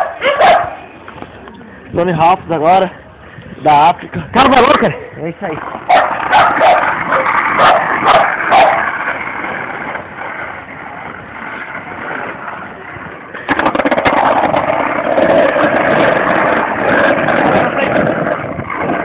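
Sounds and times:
dog barking: 0.0s - 0.8s, 5.9s - 8.8s
skateboard wheels rolling on asphalt: 0.0s - 19.0s.

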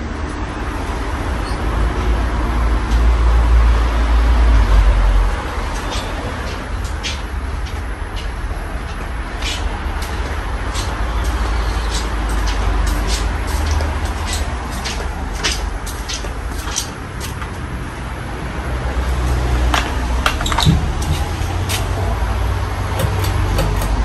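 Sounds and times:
ceiling fan running: 21.0s - 24.0s.

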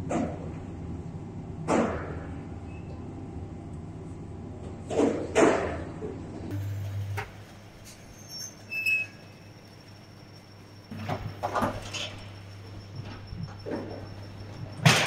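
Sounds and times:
quiet hum: 5.9s - 15.0s
metal trays clattering: 10.9s - 15.0s.

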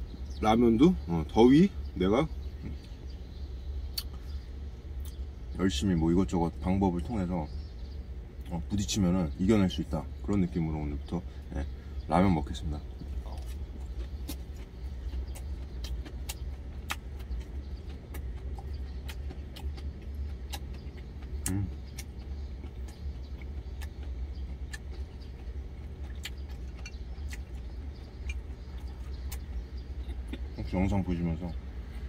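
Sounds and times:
close-up chewing with mouth clicks: 12.8s - 30.7s.

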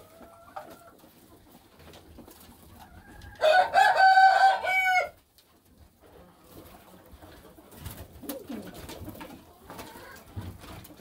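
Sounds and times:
rooster crowing: 3.4s - 5.2s.

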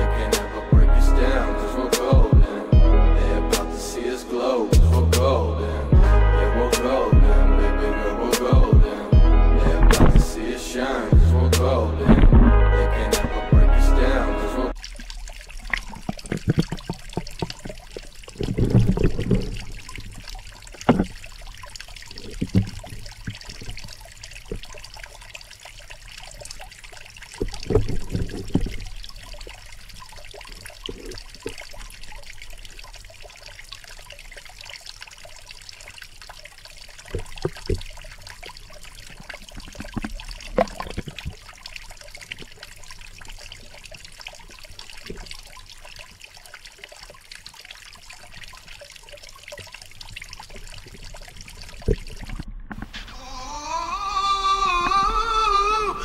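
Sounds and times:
dull underwater thuds: 2.1s - 2.6s, 8.5s - 13.7s, 14.8s - 24.9s, 27.3s - 31.7s, 37.1s - 41.6s
muffled underwater sounds: 8.2s - 13.4s, 14.0s - 34.8s, 36.7s - 46.6s, 49.2s - 56.0s.

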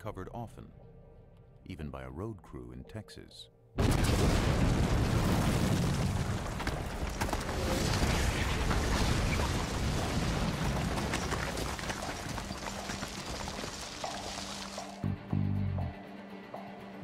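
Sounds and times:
falling rocks rattling: 3.8s - 15.0s.

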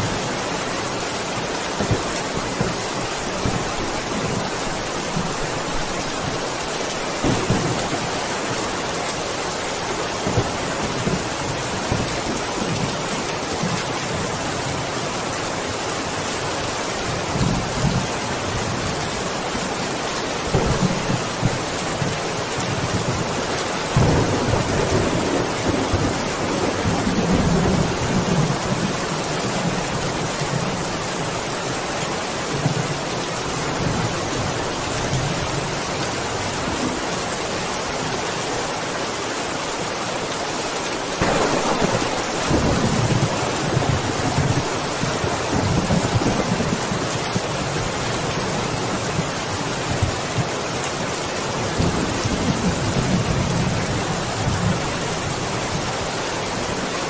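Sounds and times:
heavy rain falling: 0.0s - 57.0s
thunder rumbling: 1.7s - 9.3s, 20.4s - 23.3s, 23.9s - 30.8s, 41.2s - 48.0s.

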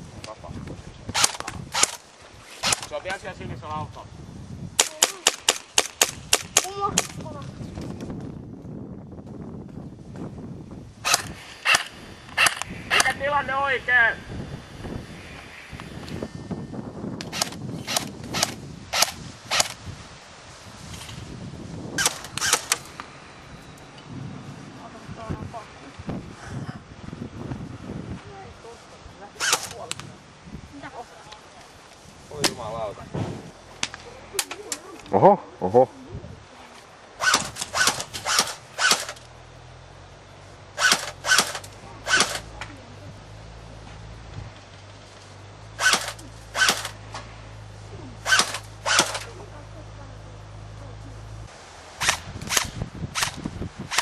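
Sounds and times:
airsoft rifle shots: 1.1s - 2.0s, 2.6s - 3.0s, 4.8s - 7.2s, 11.0s - 13.3s, 17.2s - 19.8s, 22.0s - 22.9s, 29.4s - 29.8s, 37.2s - 39.2s, 40.8s - 42.5s, 45.8s - 47.0s, 48.2s - 49.3s, 52.0s - 54.0s.

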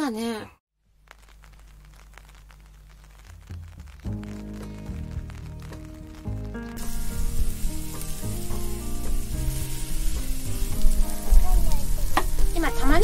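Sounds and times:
onions sizzling in a pan: 0.9s - 13.0s
background music: 3.4s - 13.0s.

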